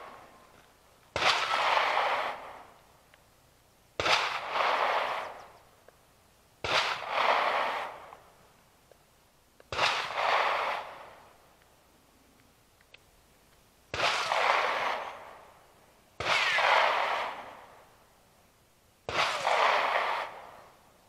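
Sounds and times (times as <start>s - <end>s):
gunshots with rolling echo: 1.1s - 2.8s, 4.0s - 5.4s, 6.6s - 8.2s, 9.7s - 11.4s, 13.9s - 15.6s, 16.2s - 17.9s, 19.1s - 20.8s.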